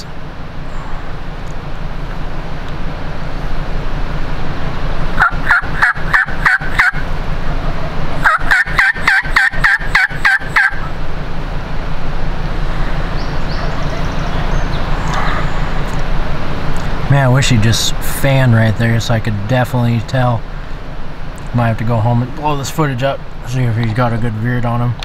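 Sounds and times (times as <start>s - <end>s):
steady low hum: 0.0s - 25.0s
turkey yelps: 5.2s - 7.0s, 8.2s - 11.0s, 13.0s - 15.9s.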